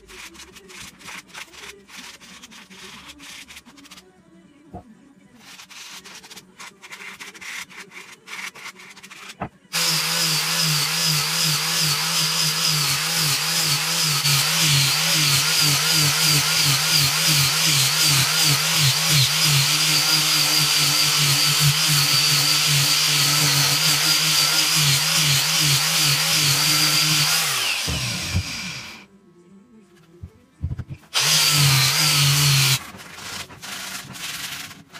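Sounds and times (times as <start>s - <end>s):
angle grinder sanding wood: 6.9s - 29.0s, 31.1s - 34.9s.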